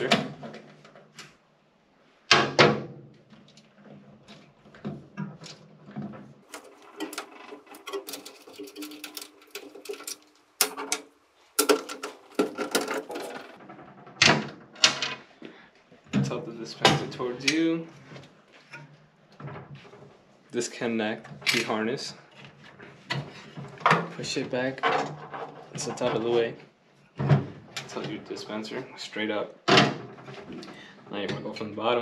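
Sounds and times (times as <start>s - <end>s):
metallic clicks and knocks: 5.2s - 15.2s.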